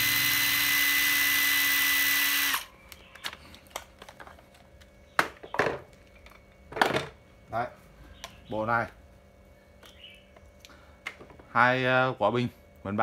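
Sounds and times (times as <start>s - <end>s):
impact driver motor whining: 0.0s - 2.7s.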